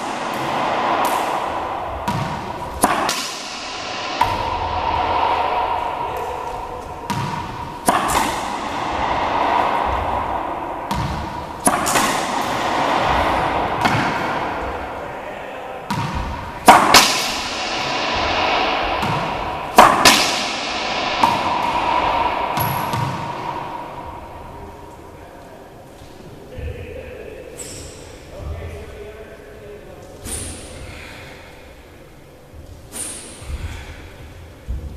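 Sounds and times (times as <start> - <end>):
racquetball cracks echoing: 0.0 - 26.1.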